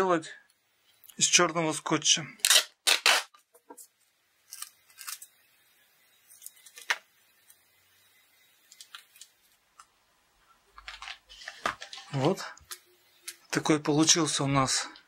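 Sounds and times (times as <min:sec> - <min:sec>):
tape crackling: 0:02.4 - 0:03.6, 0:04.4 - 0:05.6, 0:06.2 - 0:07.8, 0:08.6 - 0:09.9, 0:10.7 - 0:14.2.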